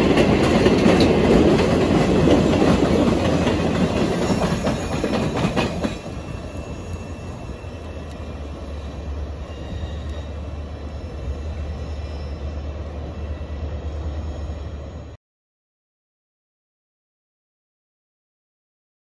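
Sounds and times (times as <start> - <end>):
train wheels rumbling on rails: 0.0 - 15.1
high wheel squeal: 4.0 - 15.1.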